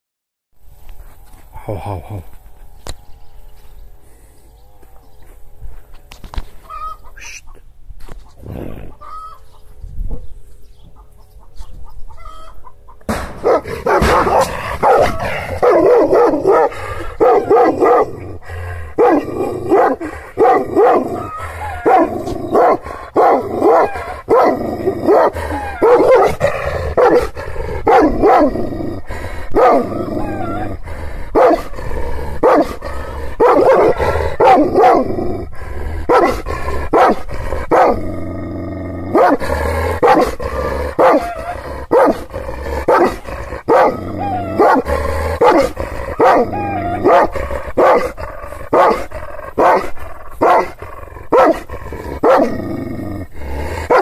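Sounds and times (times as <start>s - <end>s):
dog barking: 13.4s - 18.2s, 19.0s - 26.4s, 27.0s - 27.3s, 27.9s - 28.5s, 29.6s - 30.6s, 31.4s - 31.7s, 32.4s - 32.8s, 33.4s - 35.1s, 36.1s - 38.0s, 39.2s - 39.4s, 40.0s - 40.3s, 41.0s - 42.3s, 42.9s - 51.6s, 52.2s - 52.5s.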